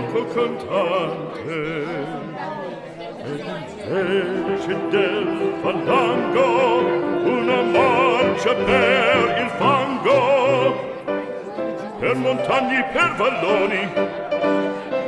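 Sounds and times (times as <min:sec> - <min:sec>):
operatic singing: 0:00.0 - 0:02.4, 0:03.2 - 0:15.0
orchestral accompaniment: 0:04.2 - 0:15.0.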